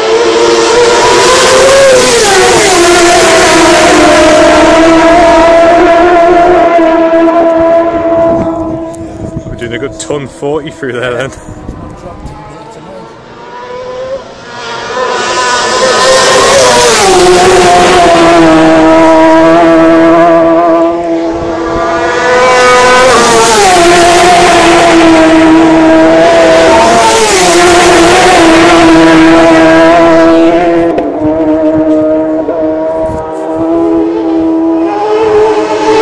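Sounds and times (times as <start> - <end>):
superbike engines passing: 11.5 - 36.0.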